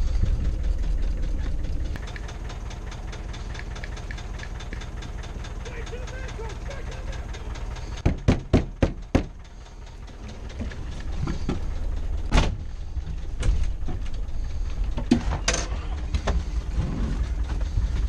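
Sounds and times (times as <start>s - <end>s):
vehicle engine rumbling: 0.0s - 18.0s
knocks and clunks from vehicle body: 8.0s - 9.4s, 10.5s - 14.1s, 14.9s - 16.5s.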